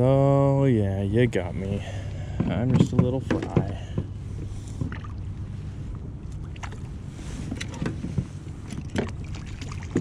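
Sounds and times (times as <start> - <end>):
wind and water rumble: 0.0 - 10.0
light knocks and clicks: 2.4 - 4.1.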